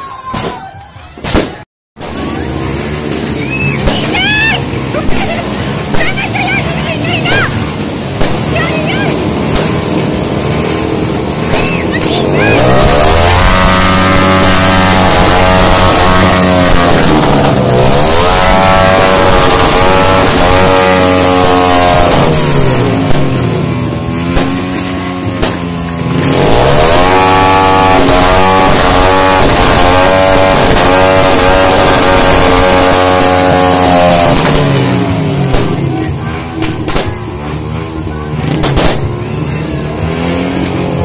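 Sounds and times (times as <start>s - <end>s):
motorcycle engines revving: 2.0s - 41.0s
engine pops: 34.3s - 37.3s, 38.4s - 39.2s.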